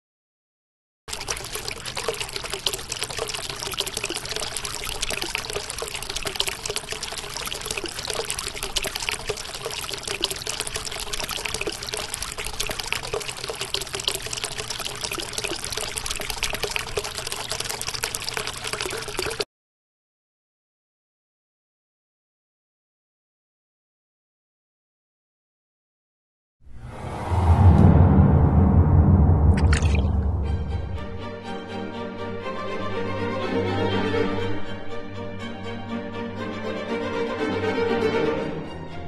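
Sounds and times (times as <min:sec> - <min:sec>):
water pouring and trickling: 0:01.1 - 0:19.5, 0:29.5 - 0:30.3.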